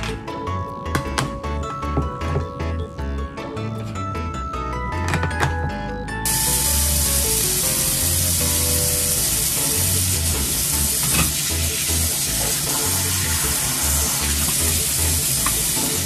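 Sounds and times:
kitchen tap running: 0:06.3 - 0:16.0.

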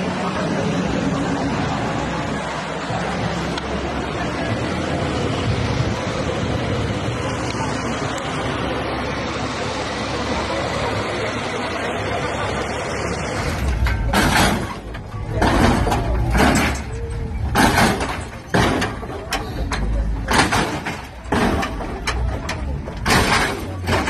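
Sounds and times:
street noise: 0:00.0 - 0:24.0
cars slamming down with thumps: 0:13.4 - 0:24.0.

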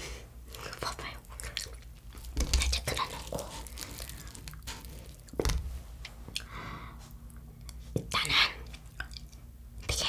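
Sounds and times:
fried crust crackling and tearing: 0:02.1 - 0:05.4.

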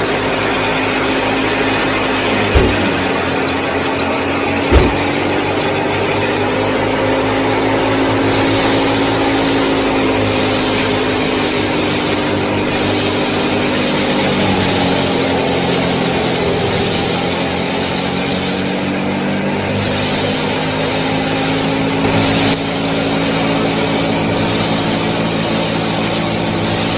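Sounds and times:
machine engine drone: 0:00.0 - 0:26.9
hiss: 0:07.8 - 0:26.9.

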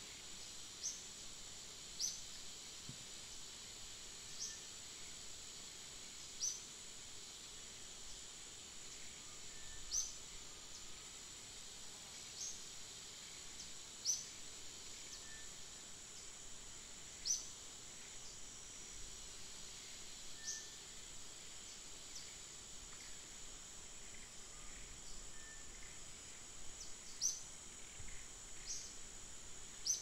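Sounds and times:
high-pitched insect drone: 0:03.2 - 0:30.0.

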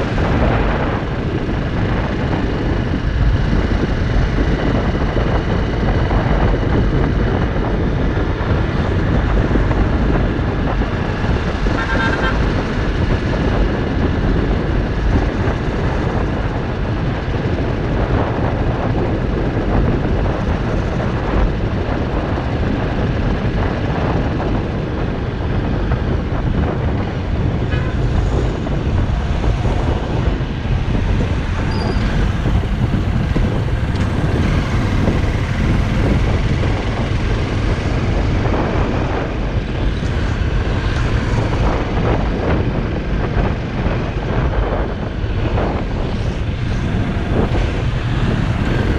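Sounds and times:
motorcycle engine running: 0:00.0 - 0:48.9
wind and road noise: 0:00.0 - 0:48.9
vehicle horn toot: 0:11.7 - 0:12.5, 0:27.7 - 0:28.0.

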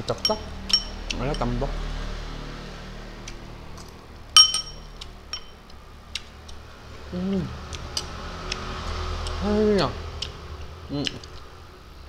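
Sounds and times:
spoon clinking glass bowl: 0:00.0 - 0:01.5, 0:04.4 - 0:05.6.

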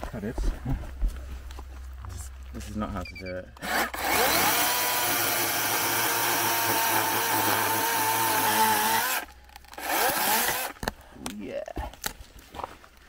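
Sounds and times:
chainsaw cutting stump: 0:03.6 - 0:11.0.

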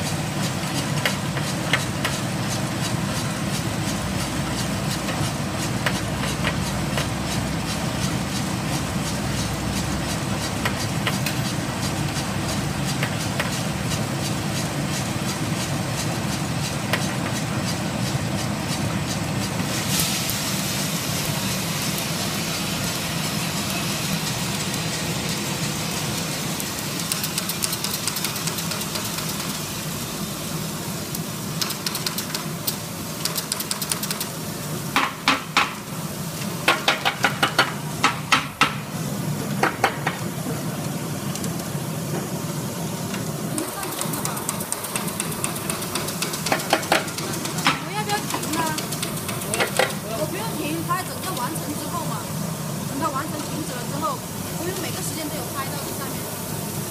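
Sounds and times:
coffee roaster drum running: 0:00.0 - 0:56.9
hot beans being stirred: 0:00.4 - 0:30.2, 0:40.7 - 0:56.0
beans clicking in drum: 0:22.8 - 0:29.8, 0:31.1 - 0:34.4, 0:43.1 - 0:50.0
steady high hiss: 0:38.8 - 0:56.9.

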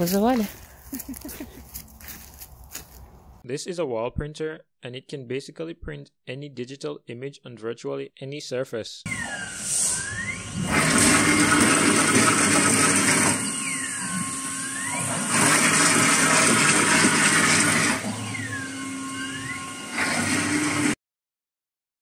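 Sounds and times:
printer whine: 0:09.1 - 0:21.0.

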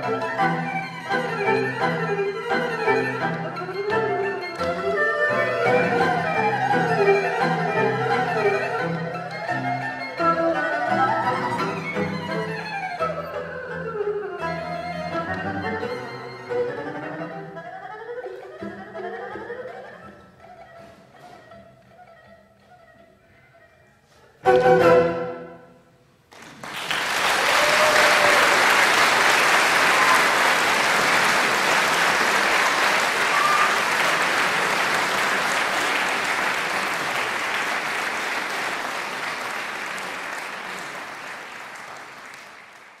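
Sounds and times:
bowed string ensemble: 0:00.0 - 0:20.4, 0:24.4 - 0:25.7
audience applause: 0:02.5 - 0:10.1, 0:26.3 - 0:43.0.

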